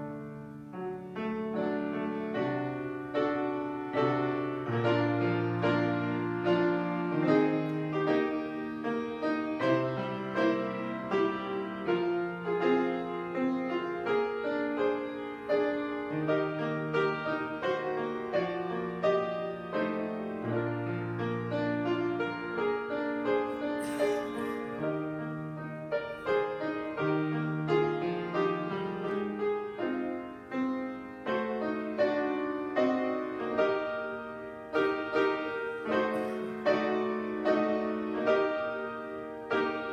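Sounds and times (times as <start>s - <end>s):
solo piano prelude: 0.0s - 39.9s.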